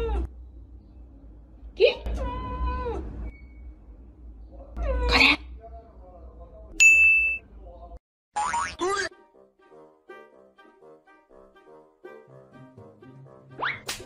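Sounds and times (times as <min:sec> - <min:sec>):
bright ringing ding: 0:06.8 - 0:07.4.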